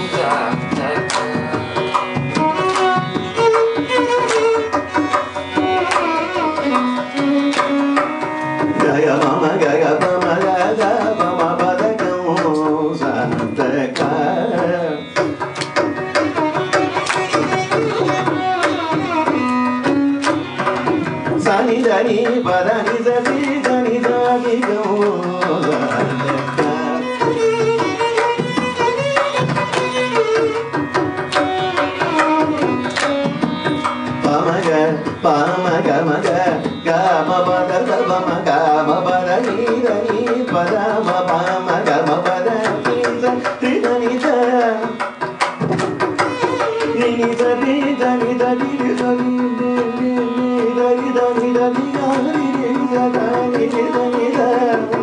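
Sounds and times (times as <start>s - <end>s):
hand drum strokes: 0.0s - 9.5s
violin: 0.0s - 55.0s
man singing ornamented phrases: 8.8s - 15.1s, 21.4s - 27.3s, 34.2s - 45.0s, 47.0s - 55.0s.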